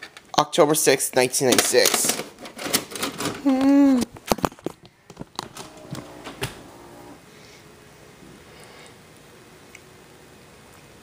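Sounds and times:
low hum: 0:05.4 - 0:07.6.

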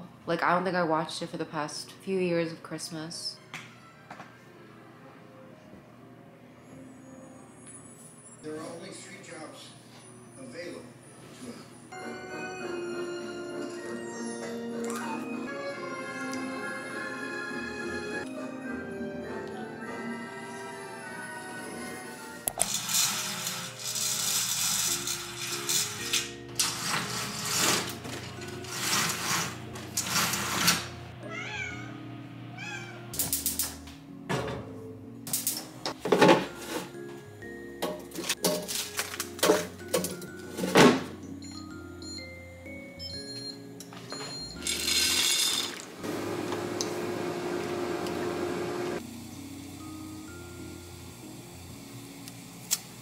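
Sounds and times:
soft background music: 0:00.0 - 0:46.1, 0:49.0 - 0:53.0
window shade rustling: 0:22.6 - 0:31.0
cat meowing: 0:31.2 - 0:33.1.

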